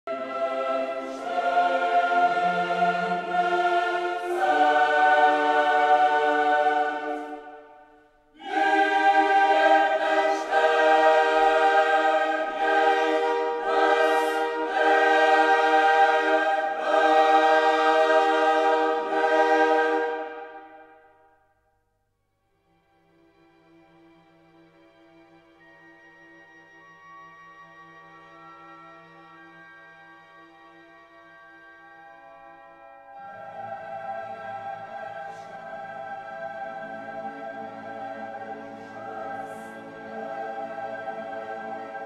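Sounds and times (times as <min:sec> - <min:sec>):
choir singing held chords: 0:00.0 - 0:21.3, 0:33.0 - 0:42.0.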